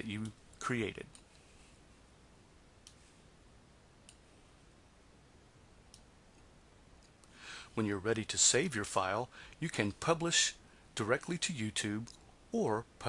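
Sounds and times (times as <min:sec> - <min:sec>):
computer mouse clicks: 0:04.0 - 0:04.3.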